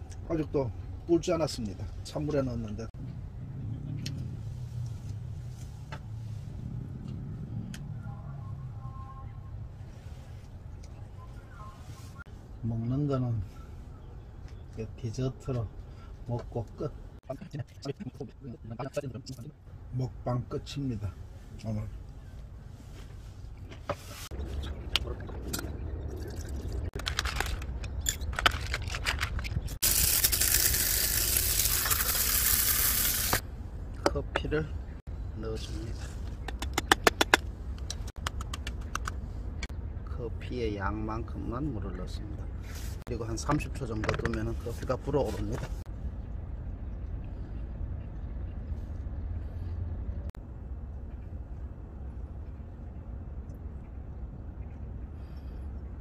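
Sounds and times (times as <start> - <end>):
low rumble: 24.2 - 30.0
coffee grinder whirring: 29.8 - 33.4.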